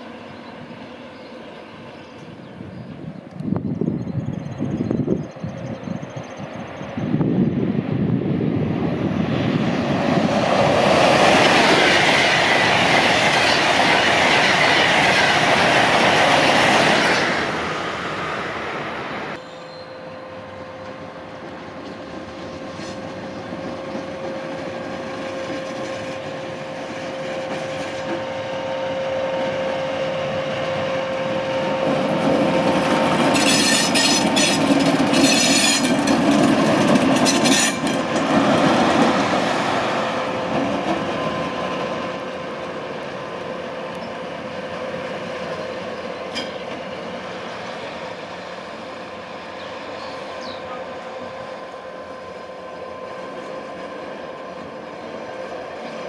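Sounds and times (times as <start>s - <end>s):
diesel locomotive engine whine: 0.0s - 56.0s
wheels rattling over track: 31.7s - 48.5s.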